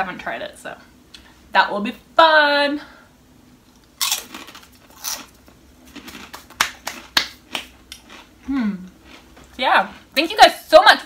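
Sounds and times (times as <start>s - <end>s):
crunchy snack chewing: 3.8s - 10.1s
person humming: 8.5s - 8.9s.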